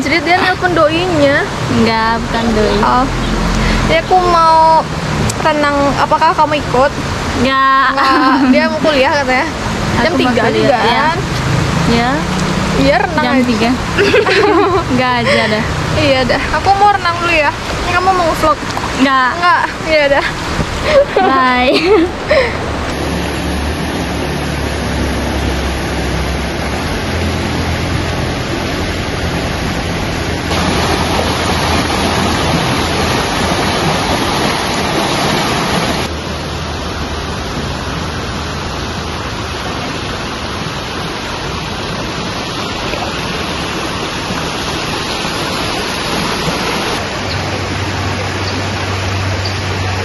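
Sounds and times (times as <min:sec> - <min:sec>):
river water rushing over rocks: 0:00.0 - 0:50.0.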